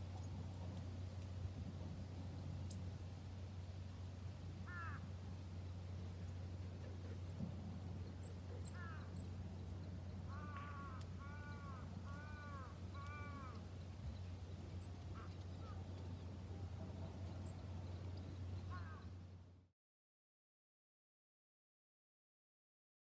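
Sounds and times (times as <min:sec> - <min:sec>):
steady low hum: 0:00.0 - 0:19.7
crow cawing: 0:04.6 - 0:05.1, 0:08.7 - 0:09.1, 0:10.3 - 0:13.6, 0:15.1 - 0:15.8, 0:18.7 - 0:19.1.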